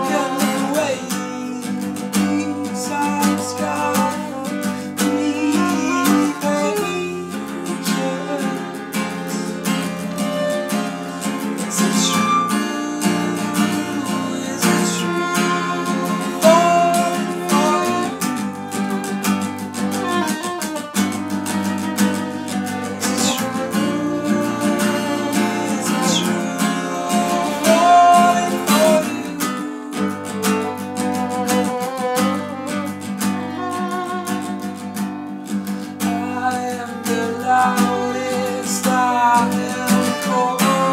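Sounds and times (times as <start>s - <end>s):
acoustic guitar strumming: 0.0s - 40.9s
violin melody: 0.0s - 40.9s.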